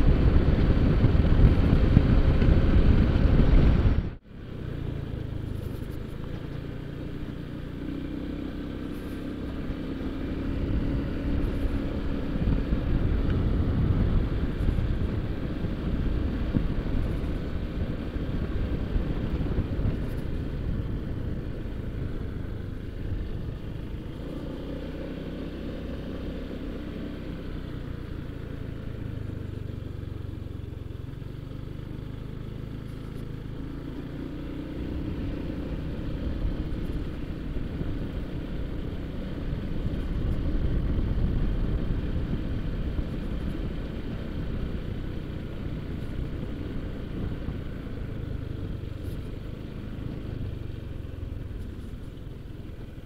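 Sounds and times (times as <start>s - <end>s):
low rumble on microphone: 0.0s - 7.3s, 8.9s - 24.6s
scooter engine running: 0.0s - 53.0s.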